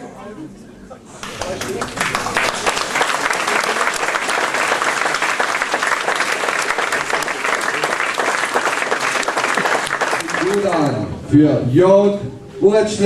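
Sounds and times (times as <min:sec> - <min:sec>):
audience applauding: 0:01.1 - 0:11.0.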